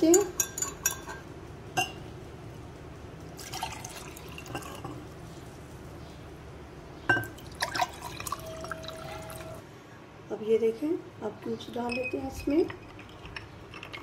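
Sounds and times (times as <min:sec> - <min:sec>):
glass clinking: 0:00.0 - 0:02.0, 0:03.4 - 0:05.0, 0:07.0 - 0:09.6
liquid pouring into glasses: 0:03.4 - 0:05.0, 0:07.2 - 0:09.6.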